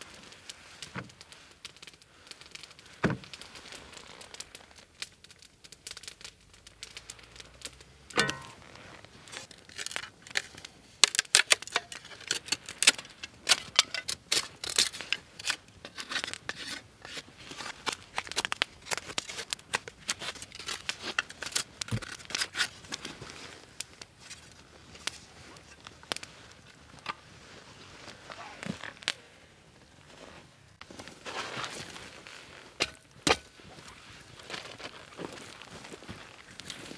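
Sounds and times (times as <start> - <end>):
knife scraping wood: 11.4 - 19.5.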